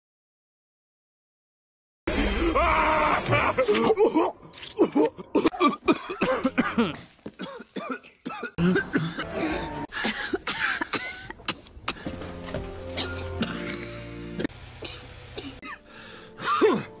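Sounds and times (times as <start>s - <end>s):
cartoon characters coughing: 3.7s - 11.6s, 13.0s - 15.8s, 16.4s - 17.0s.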